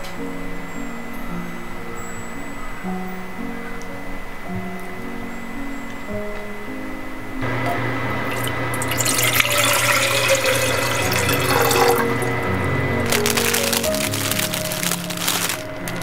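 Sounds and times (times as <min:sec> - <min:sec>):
water pouring into saucepan: 0:08.2 - 0:12.4.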